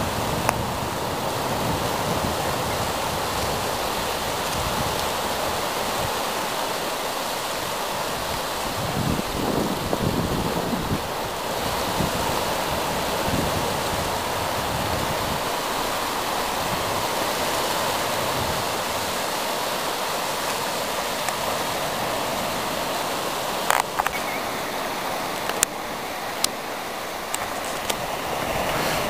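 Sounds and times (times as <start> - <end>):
wind buffeting microphone: 0.0 - 6.4, 7.6 - 19.2
ocean waves breaking: 0.0 - 29.0.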